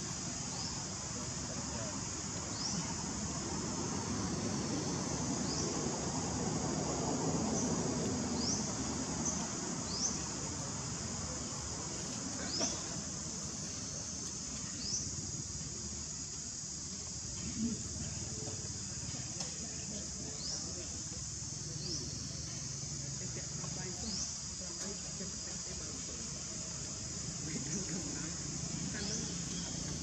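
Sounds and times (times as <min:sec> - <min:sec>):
high-pitched insect chorus: 0:00.0 - 0:30.0.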